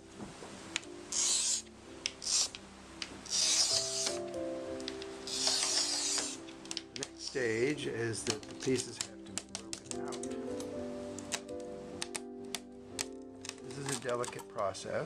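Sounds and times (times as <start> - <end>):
soft background music: 0.0 - 15.0
glass cutter scratching glass: 1.1 - 2.6, 3.2 - 4.3, 5.2 - 6.4.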